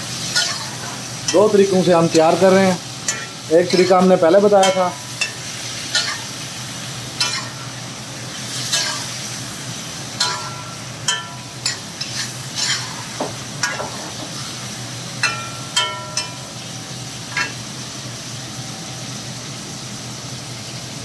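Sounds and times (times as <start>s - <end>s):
chicken sizzling in hot fat: 0.0s - 21.0s
metal spatula scraping pan: 0.3s - 1.5s, 3.1s - 6.3s, 7.2s - 7.6s, 10.2s - 14.4s.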